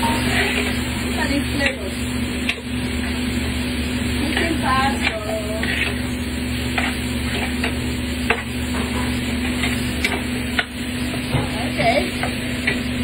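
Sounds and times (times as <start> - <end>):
food stirred in a pan: 0.0 - 13.0
steady low hum: 0.0 - 13.0
utensil clicking against pan: 6.7 - 10.8.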